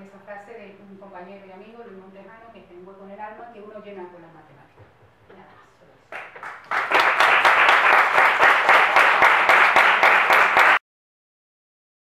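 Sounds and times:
audience applauding: 0:06.1 - 0:10.8.

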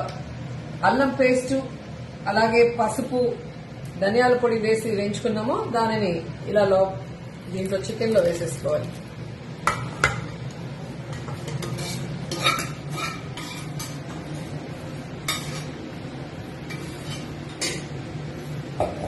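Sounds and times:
steady low hum: 0:00.0 - 0:19.0
metal spatula scraping pan: 0:11.2 - 0:14.1, 0:15.3 - 0:15.8
spatula clinking on metal pot: 0:11.5 - 0:14.0.

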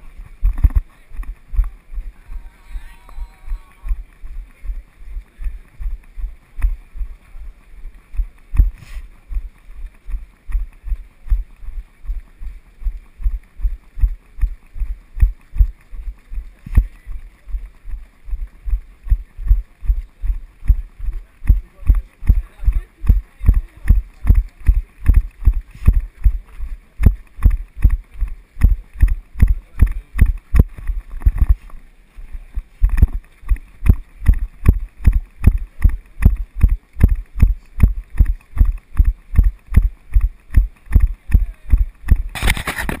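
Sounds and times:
runner's footfall thuds: 0:08.5 - 0:09.1.

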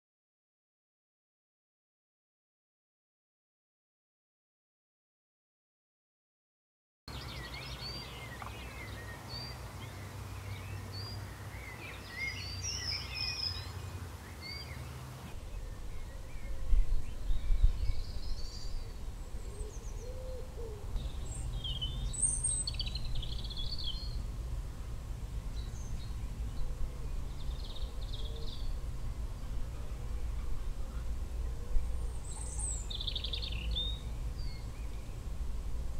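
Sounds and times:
songbirds chirping and singing: 0:07.1 - 0:24.4, 0:25.4 - 0:35.4
wind on microphone: 0:15.2 - 0:35.9.

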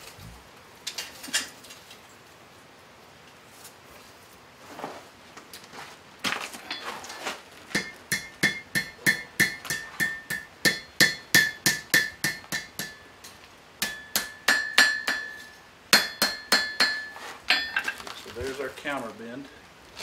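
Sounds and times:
hammer striking hot steel on anvil: 0:07.7 - 0:18.0
anvil ringing: 0:07.8 - 0:13.1, 0:13.8 - 0:18.0.

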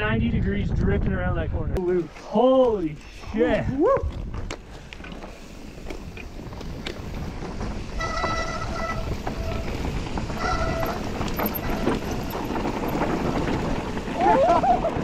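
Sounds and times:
wind on camera: 0:00.0 - 0:15.0
bike tyres crunching on dirt: 0:04.1 - 0:15.0
bike frame rattling: 0:04.2 - 0:15.0.

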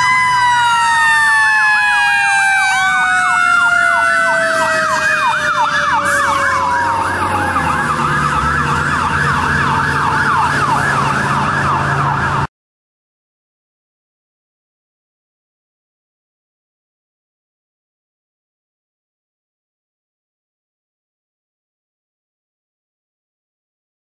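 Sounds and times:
fire truck sirens yelp and wail: 0:00.0 - 0:12.5
truck engine rumbling: 0:00.0 - 0:12.5.

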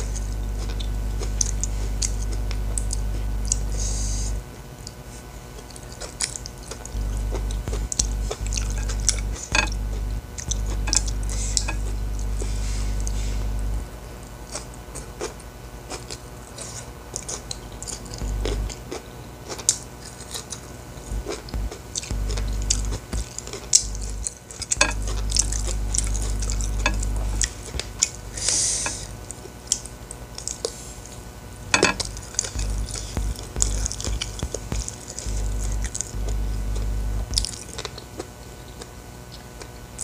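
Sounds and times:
low hum: 0:00.0 - 0:04.8, 0:06.5 - 0:14.4, 0:17.8 - 0:19.0, 0:20.6 - 0:29.4, 0:31.2 - 0:37.8.

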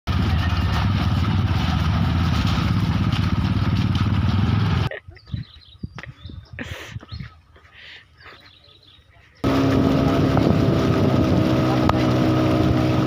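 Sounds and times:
motorcycle engine: 0:00.1 - 0:05.0, 0:09.4 - 0:13.0
faint bird chirps: 0:05.1 - 0:09.4.

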